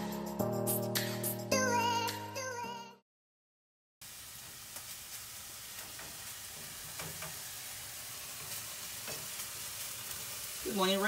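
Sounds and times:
meat sizzling in a frying pan: 4.0s - 11.0s.

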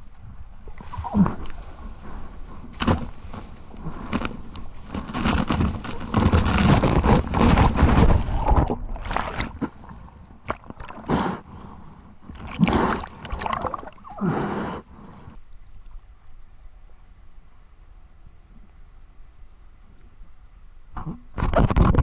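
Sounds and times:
whitewater splashes and gurgles: 4.8s - 11.2s, 12.2s - 14.4s.

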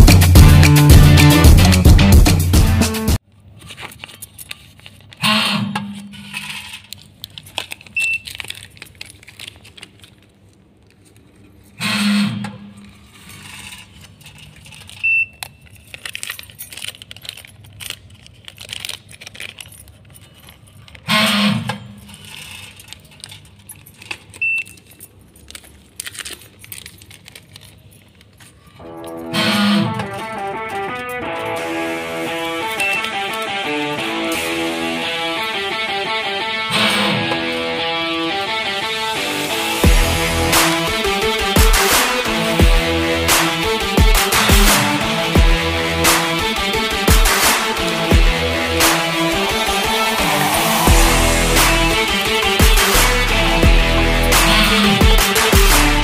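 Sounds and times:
granules falling: 6.3s - 11.7s, 13.0s - 21.1s, 22.0s - 29.1s
filling machine humming: 29.1s - 56.0s.

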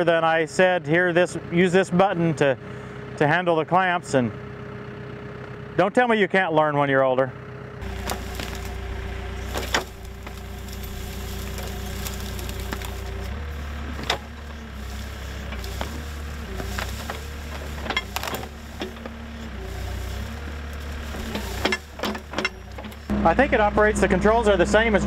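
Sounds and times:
backhoe engine running: 0.0s - 25.0s
branches cracking and snapping: 7.8s - 23.1s
bucket digging through brush: 7.8s - 23.1s.

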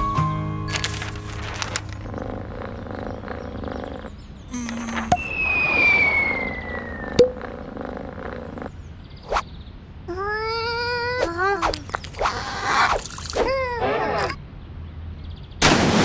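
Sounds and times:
cartoon falling whistle: 5.0s - 7.2s.

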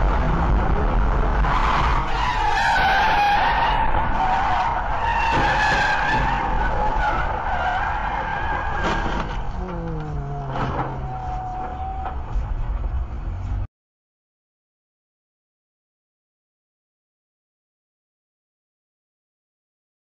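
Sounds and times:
low road rumble: 0.0s - 13.7s
tyres squealing in a skid: 1.4s - 9.6s, 10.2s - 12.4s.

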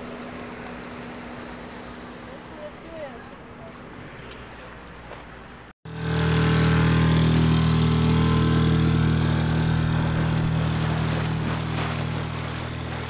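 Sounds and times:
boat engine droning: 0.0s - 4.8s, 5.8s - 13.0s.

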